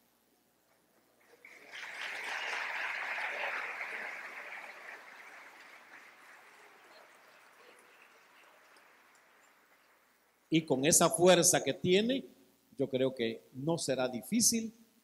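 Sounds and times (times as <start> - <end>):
congregation applauding: 1.2 - 10.8.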